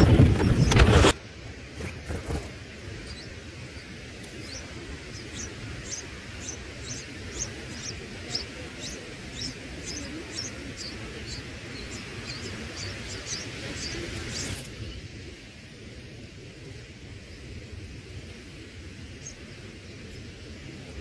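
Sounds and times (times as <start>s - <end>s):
nestlings begging chirps: 1.8s - 15.1s, 19.0s - 21.0s.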